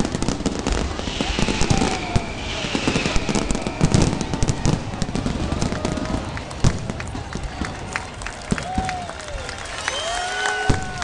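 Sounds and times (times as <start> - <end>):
firework shells bursting: 0.0 - 6.9.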